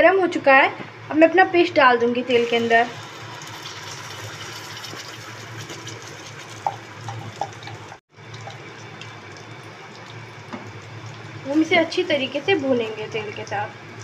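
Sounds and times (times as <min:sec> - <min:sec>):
paste sizzling in hot oil: 0:02.3 - 0:07.5.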